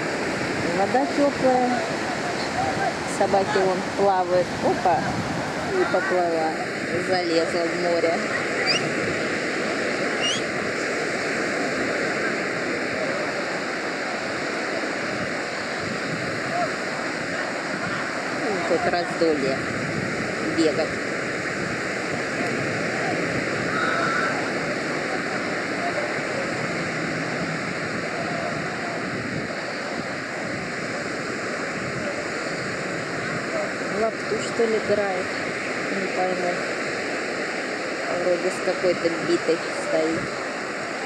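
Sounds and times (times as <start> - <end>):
sea surf washing over shore: 0.0 - 41.0
short rising chirp: 10.2 - 10.4.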